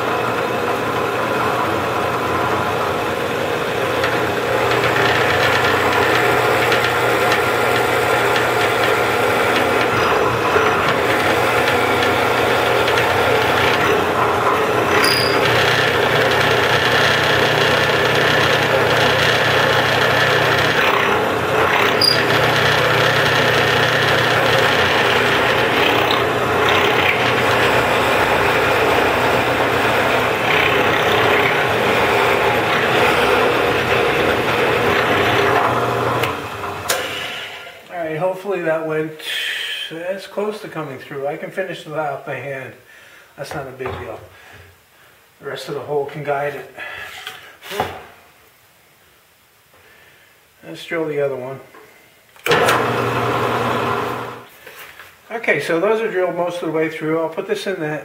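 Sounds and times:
drill bit cutting wood: 0.0 - 37.8, 52.4 - 54.5
drill press motor hum: 0.0 - 37.9, 52.4 - 54.5.

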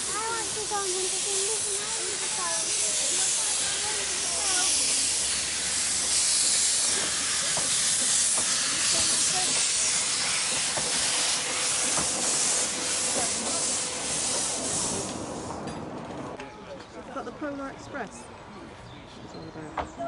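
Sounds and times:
steam locomotive hissing: 0.0 - 15.8.

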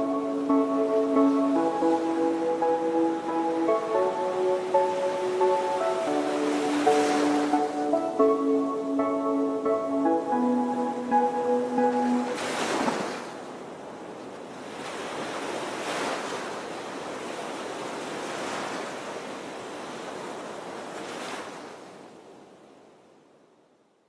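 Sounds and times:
water splashing in surges: 11.8 - 21.9.

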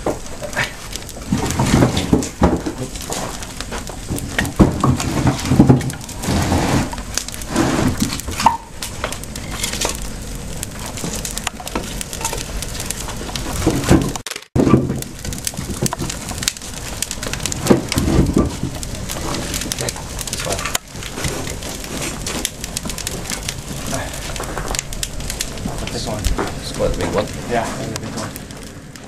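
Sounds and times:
wooden sticks clattering on brick: 0.0 - 10.0.

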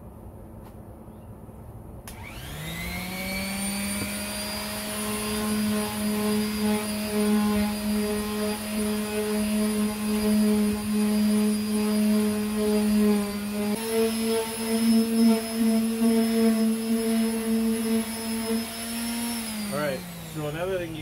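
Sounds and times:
sander switch click: 2.1 - 2.3
palm sander motor whine: 2.1 - 21.0
sanding plastic: 3.5 - 21.0.

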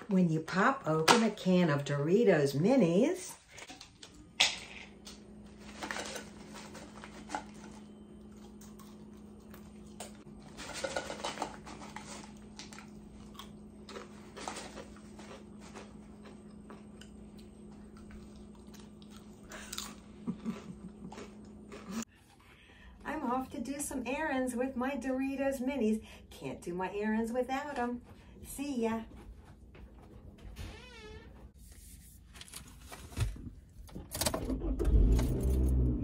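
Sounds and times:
steady low hum: 0.0 - 32.5
person crunching chips: 4.4 - 22.0.

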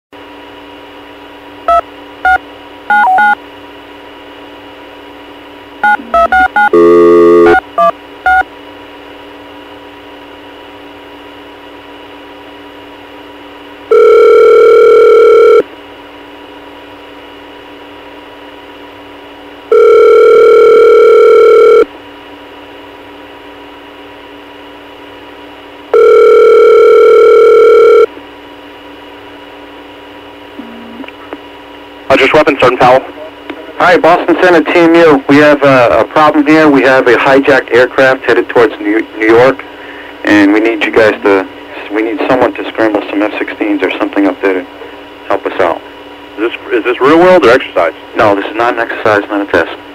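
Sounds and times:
faint phone line hum: 1.6 - 3.6, 5.8 - 8.8, 12.2 - 31.4
telephone ringback tone: 1.7 - 3.4, 5.8 - 8.4, 13.9 - 15.6, 19.7 - 21.9, 25.9 - 28.1
touch-tone dialing beeps: 1.7 - 3.4, 5.8 - 8.4
brief harsh tone: 5.8 - 7.6.

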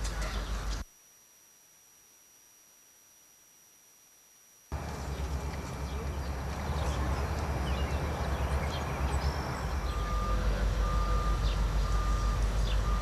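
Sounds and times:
low rumble of machinery: 4.7 - 13.0
reversing alarm beeping: 7.4 - 13.0.

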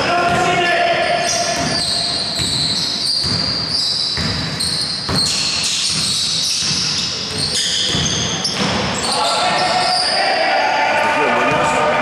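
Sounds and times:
high squeaks: 1.2 - 10.4
basketball dribbled on wooden floor: 1.5 - 8.9.

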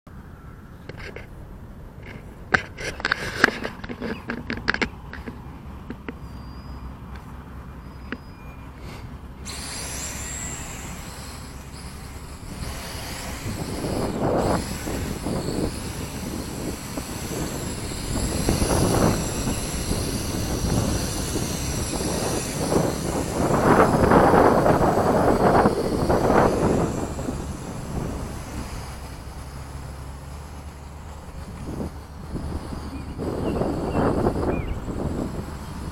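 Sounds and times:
quadcopter motors whining: 7.7 - 35.9
wind on microphone: 9.5 - 29.8, 31.3 - 35.9.

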